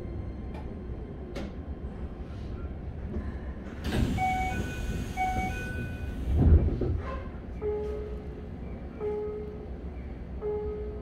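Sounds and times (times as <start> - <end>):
train doors closing thump: 3.8 - 7.3.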